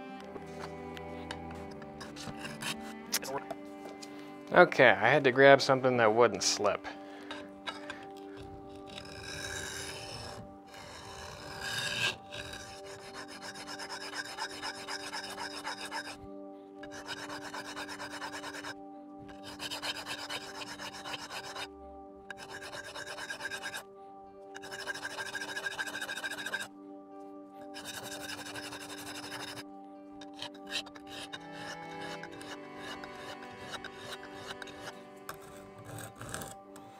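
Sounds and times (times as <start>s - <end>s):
knife scraping on sharpening stone: 0.6s - 3.6s, 7.0s - 16.2s, 16.8s - 21.7s, 22.3s - 23.8s, 24.6s - 26.7s, 27.6s - 29.6s, 30.2s - 36.9s.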